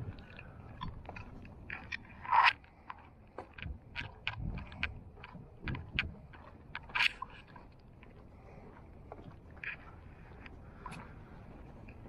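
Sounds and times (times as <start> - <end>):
clicks and crackles: 0.0 - 8.2
footsteps on wet wooden boards: 0.0 - 12.0.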